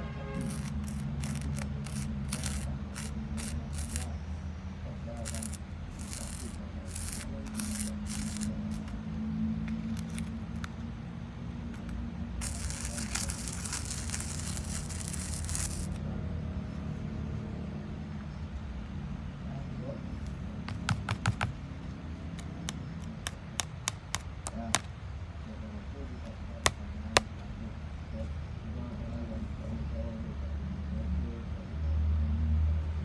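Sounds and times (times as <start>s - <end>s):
plastic spoon scraping glitter: 0.4s - 4.2s, 5.2s - 9.0s, 9.6s - 10.8s, 11.7s - 16.0s.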